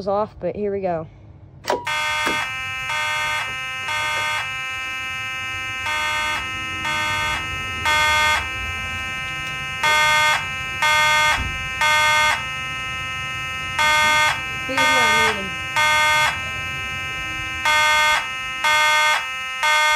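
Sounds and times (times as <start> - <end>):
pull station click: 1.6 - 2.5
fire alarm horns: 1.7 - 19.9
steady alarm tone: 1.7 - 19.9.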